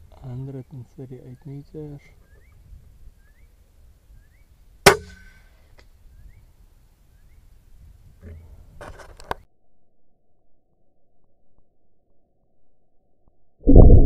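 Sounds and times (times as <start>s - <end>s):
suppressed air rifle shot: 4.8s - 5.5s.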